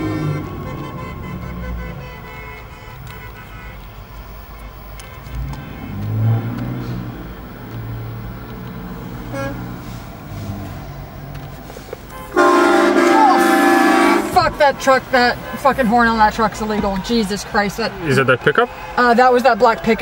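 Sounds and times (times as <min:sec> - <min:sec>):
train horn blast: 0:00.0 - 0:03.9, 0:09.2 - 0:10.0, 0:12.1 - 0:14.6
truck engines rumbling: 0:00.0 - 0:20.0.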